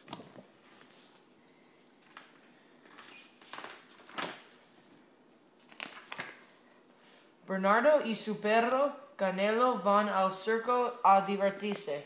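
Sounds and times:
soft rustles of book handling: 0.0 - 7.3.

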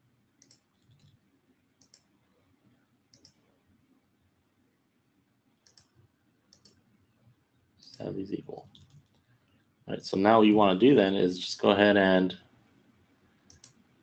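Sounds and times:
computer mouse clicks: 0.4 - 1.2, 1.8 - 2.2, 3.1 - 3.5, 5.6 - 6.8, 8.6 - 9.6, 13.4 - 13.9.

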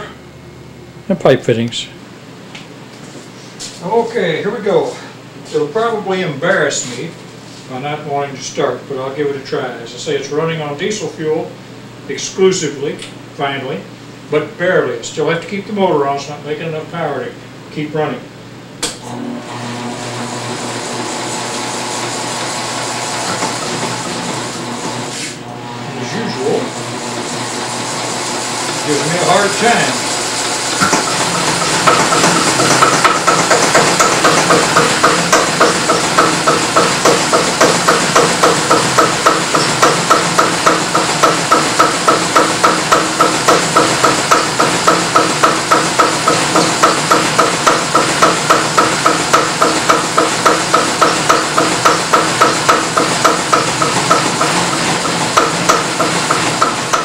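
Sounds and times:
diesel engine knocking: 30.9 - 57.0.

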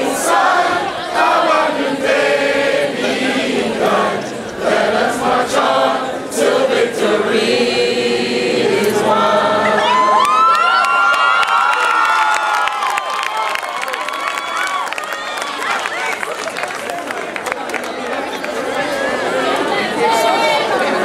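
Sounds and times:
audience whooping and whistling: 9.8 - 16.0.

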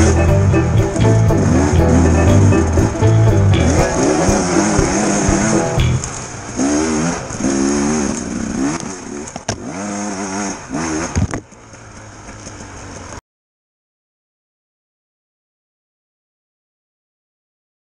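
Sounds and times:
motorcycle engine revving: 0.0 - 13.1.

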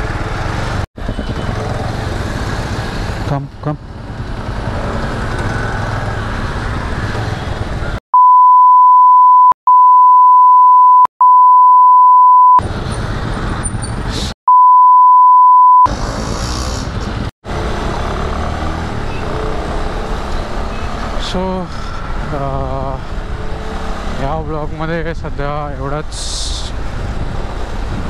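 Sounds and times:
motorcycle riding noise: 0.0 - 8.0, 15.9 - 24.4
censor bleep: 8.2 - 12.6, 14.5 - 15.9.

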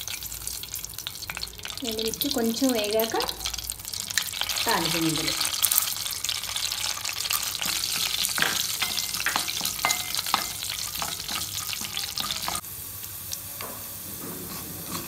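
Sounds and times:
seeds sizzling in hot oil: 0.0 - 15.0
spoon scraping metal pot: 7.4 - 12.6, 14.4 - 15.0.

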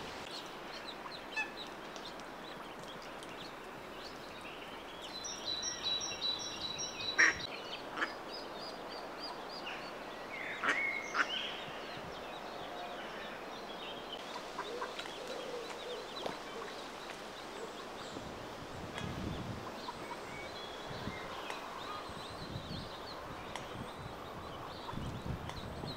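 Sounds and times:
ducklings peeping: 7.0 - 9.5.

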